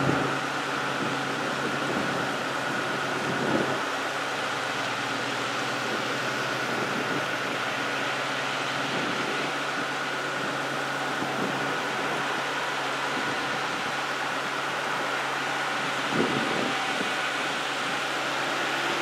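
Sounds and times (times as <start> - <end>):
cars driving past: 0.0 - 19.0
steady high whine: 0.0 - 19.0.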